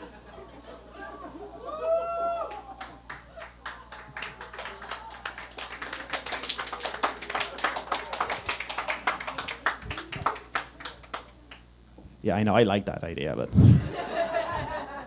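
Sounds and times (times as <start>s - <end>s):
audience clapping: 2.4s - 11.7s.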